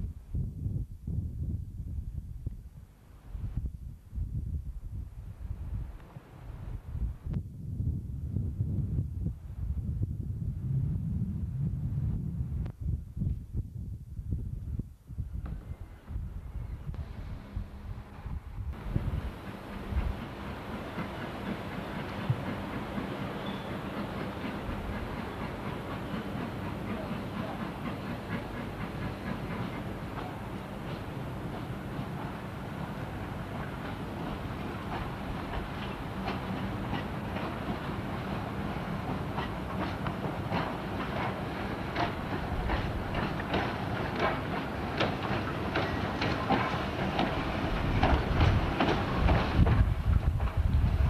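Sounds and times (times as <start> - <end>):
light clanks from engine and track: 16.9 - 51.0
steam hissing: 18.8 - 51.0
wheels and couplings clanking: 39.1 - 50.7.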